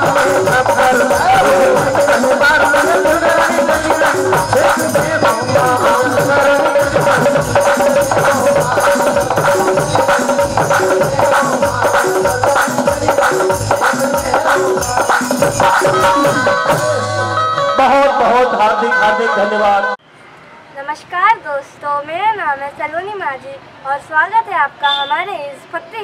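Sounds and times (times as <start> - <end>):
fast hand-drum rhythm: 0.0 - 17.3
keyboard melody: 0.0 - 20.0.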